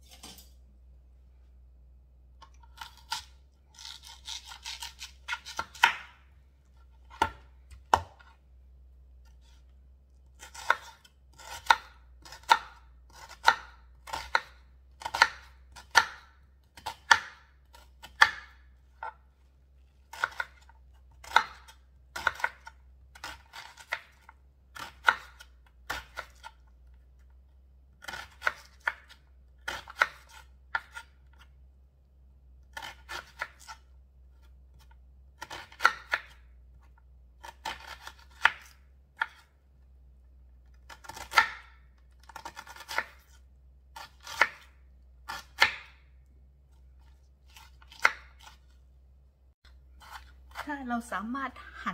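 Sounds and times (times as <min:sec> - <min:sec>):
knife chopping on wooden board: 0:02.8 - 0:06.2, 0:07.0 - 0:08.3, 0:10.4 - 0:19.2, 0:20.1 - 0:26.5, 0:28.0 - 0:31.5, 0:34.8 - 0:36.4, 0:37.4 - 0:39.5, 0:40.9 - 0:43.4, 0:44.0 - 0:44.7, 0:45.3 - 0:46.0, 0:47.5 - 0:48.7, 0:50.0 - 0:50.6.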